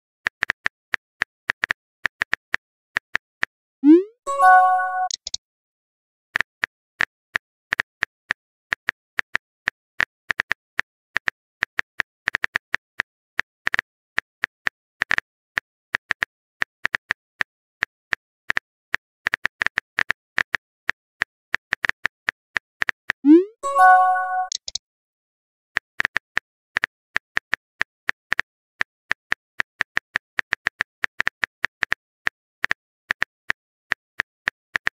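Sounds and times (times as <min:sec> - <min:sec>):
keyboard typing clicks: 0:03.8 - 0:05.4, 0:23.3 - 0:24.8
message pop: 0:03.8 - 0:05.4, 0:23.3 - 0:24.8.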